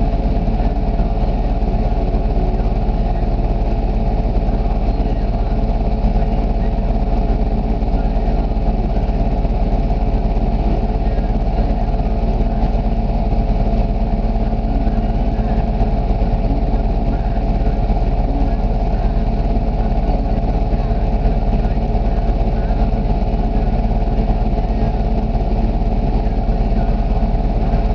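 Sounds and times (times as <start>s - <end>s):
atv engine idling: 0.0s - 27.9s.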